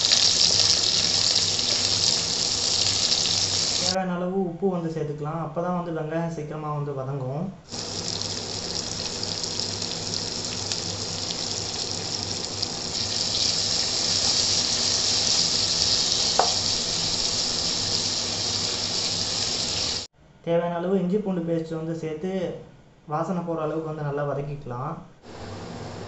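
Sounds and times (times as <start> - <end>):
onions sizzling in hot oil: 0.0 - 4.0, 7.7 - 20.1.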